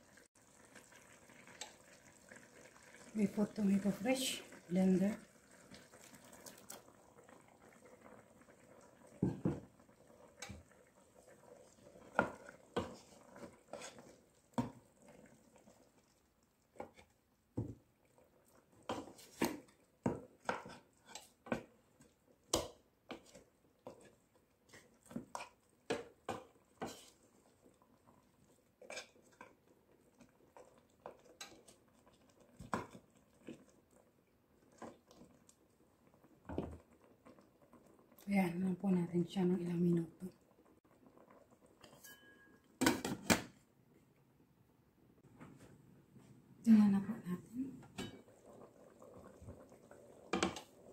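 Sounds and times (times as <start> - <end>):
wooden spatula scraping metal pot: 11.8 - 14.8, 18.8 - 21.7, 22.5 - 27.3, 28.8 - 29.5.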